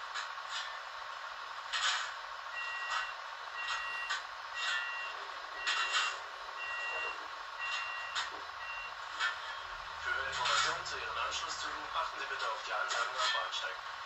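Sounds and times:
two-tone electronic warning beeps: 2.5 - 9.0.

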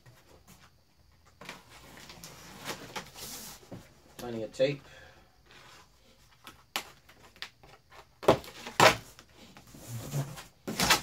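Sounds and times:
cardboard taps and rustles: 6.4 - 9.2
packing tape ripping: 8.3 - 9.2, 10.6 - 11.0.

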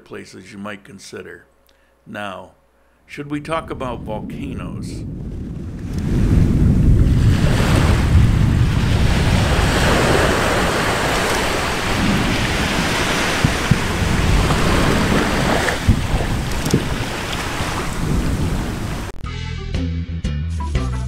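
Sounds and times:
volcano rumbling: 3.4 - 19.1.

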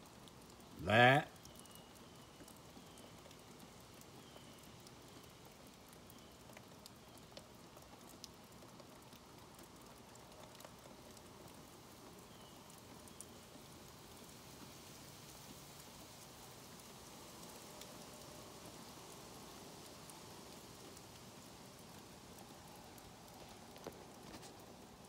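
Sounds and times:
faint high chirp: 1.4 - 3.2
soft ticks: 1.4 - 11.6, 12.4 - 13.3.

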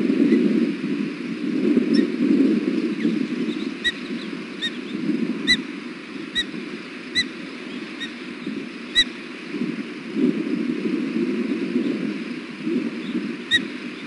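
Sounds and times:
osprey chirping: 2.8 - 9.3, 13.0 - 14.0.

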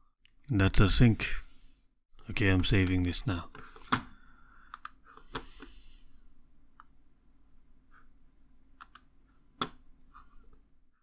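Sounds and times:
computer mouse clicks: 4.7 - 5.5, 8.8 - 9.8.

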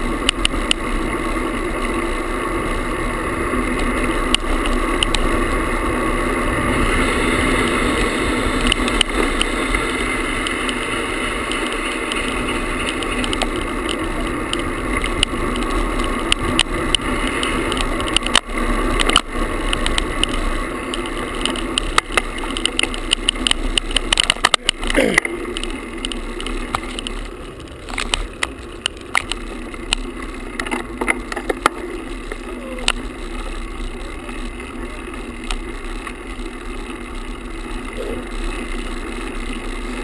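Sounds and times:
camera vibration buzz and rattle: 0.0 - 40.0.

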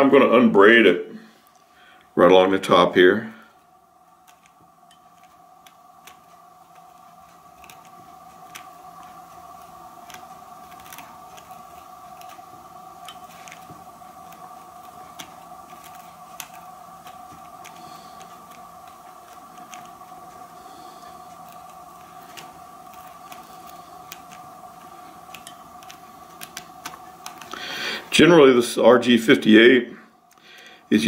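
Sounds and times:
faint two-tone hum: 0.0 - 31.0
pick scratching wire braid: 4.0 - 28.6.

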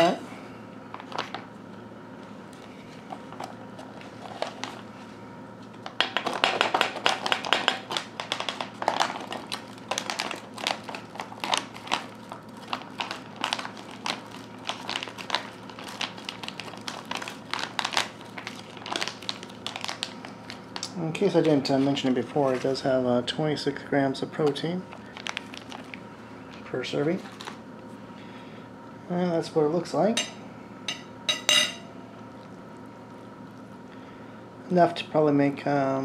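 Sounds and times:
foil food pouch crinkling: 3.2 - 4.9, 5.8 - 21.4, 24.8 - 27.6.

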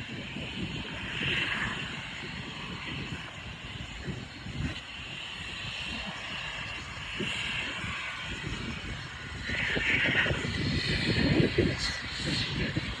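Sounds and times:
jet engines whining: 0.0 - 13.0.

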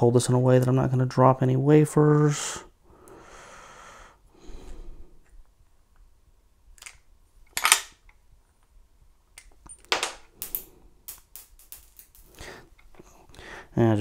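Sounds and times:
small metal parts clicking: 9.4 - 12.4.

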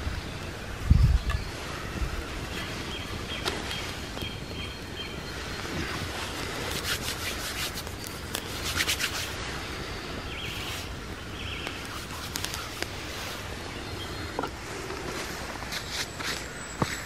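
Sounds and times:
wood fire crackling: 0.0 - 17.0
hands rubbing together: 6.0 - 9.4, 11.7 - 13.4.

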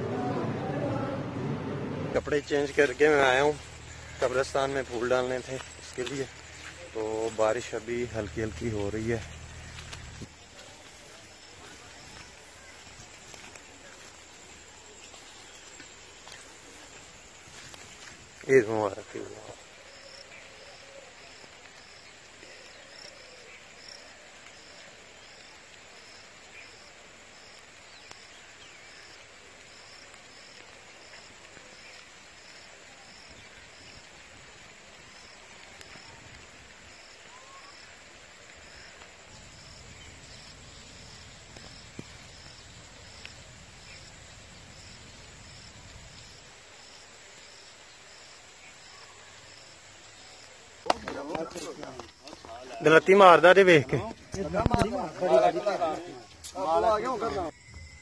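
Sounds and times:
low rumble: 0.0 - 2.8, 7.8 - 10.5
faint hiss: 0.1 - 57.3
insect chirping: 2.2 - 58.0.

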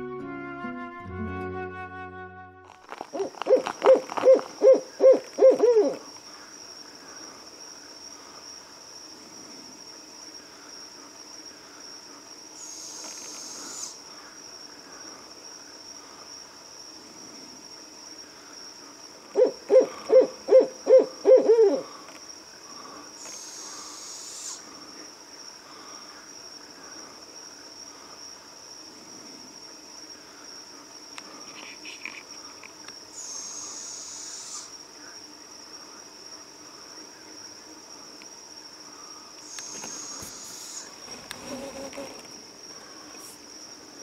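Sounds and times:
night insects trilling: 0.0 - 44.0
owl hooting: 3.1 - 6.1, 12.6 - 14.0, 19.3 - 22.0, 23.2 - 24.7, 33.1 - 34.7, 39.4 - 42.3.

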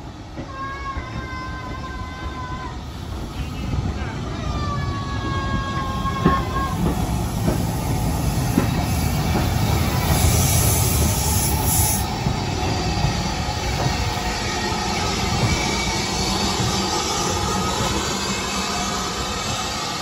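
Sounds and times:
train clanks: 0.0 - 20.0
wheels rumbling on rail: 0.0 - 20.0
steam hissing: 5.9 - 20.0.

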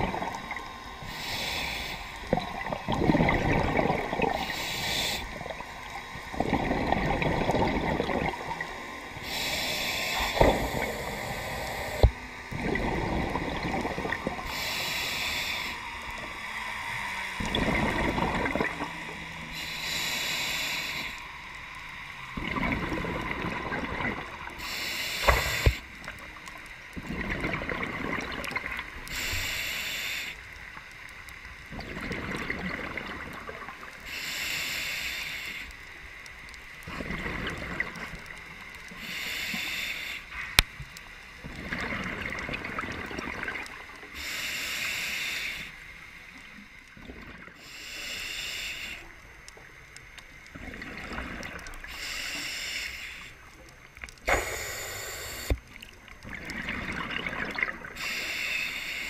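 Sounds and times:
bubbling exhale underwater: 0.0 - 0.7, 2.3 - 14.6, 17.4 - 19.1, 22.4 - 24.6, 27.0 - 29.2, 31.7 - 33.8, 36.8 - 38.2, 41.5 - 43.8, 54.2 - 58.2
diver inhaling through regulator: 1.0 - 2.7, 3.8 - 5.5, 9.1 - 12.3, 13.0 - 21.4, 24.2 - 26.1, 29.1 - 30.5, 34.1 - 35.8, 38.9 - 40.6, 44.0 - 46.0, 47.5 - 49.2, 51.8 - 53.5, 54.2 - 55.6, 57.7 - 59.0.

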